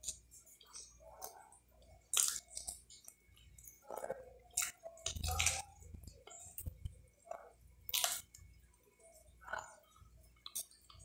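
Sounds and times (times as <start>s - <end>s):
chewing and wet mouth sounds: 0.0s - 11.0s.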